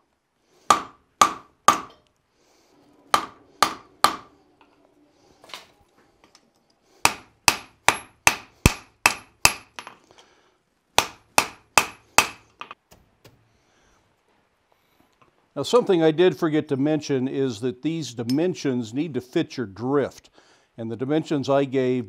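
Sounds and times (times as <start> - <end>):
hammer striking steel on anvil: 0.7 - 2.1, 3.1 - 4.3, 7.0 - 10.0, 11.0 - 12.8.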